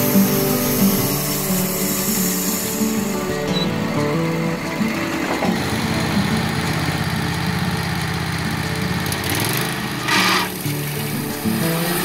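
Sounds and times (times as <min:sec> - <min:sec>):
burst of hiss: 0:00.0 - 0:04.4, 0:09.9 - 0:12.0
sawmill engine running: 0:00.0 - 0:12.0.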